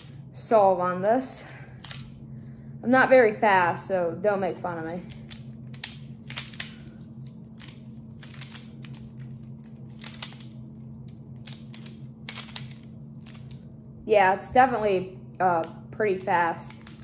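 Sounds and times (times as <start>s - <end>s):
plastic puzzle clicks: 5.1s - 6.9s, 7.6s - 9.1s, 9.9s - 10.5s, 11.4s - 13.6s.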